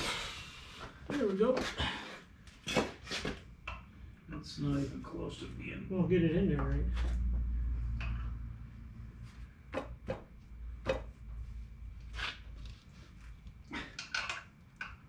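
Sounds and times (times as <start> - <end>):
sharp knocks and clicks on metal: 9.7 - 11.2.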